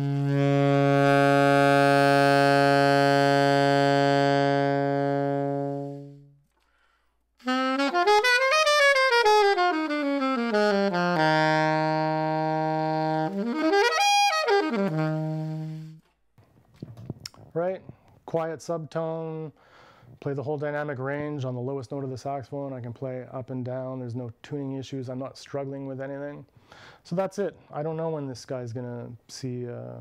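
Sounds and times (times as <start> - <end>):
alto saxophone playing: 0.0 - 6.4, 7.4 - 16.0.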